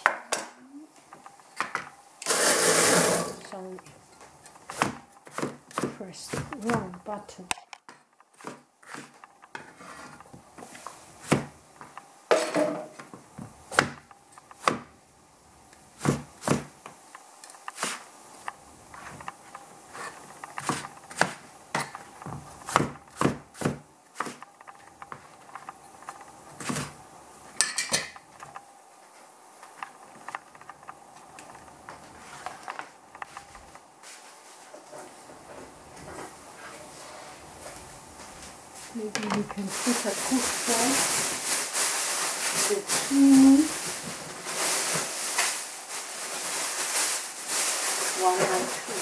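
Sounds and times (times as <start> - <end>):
cleaver chopping on plastic board: 4.7 - 6.9, 11.2 - 11.5, 20.6 - 24.4.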